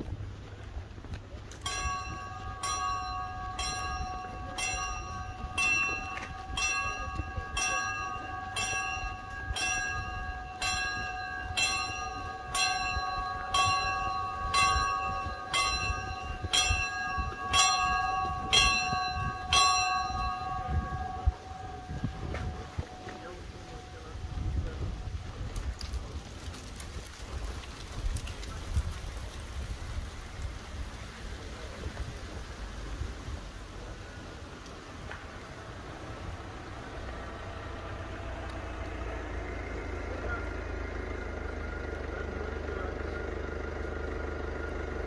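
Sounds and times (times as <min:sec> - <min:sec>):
bell ringing: 0:01.5 - 0:25.4.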